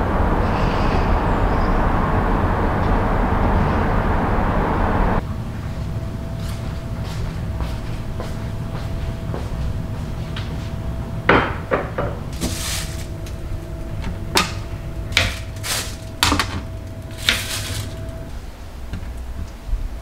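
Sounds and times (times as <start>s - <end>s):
steady low hum: 0.0s - 20.0s
short rustles: 12.3s - 13.4s, 17.0s - 18.3s.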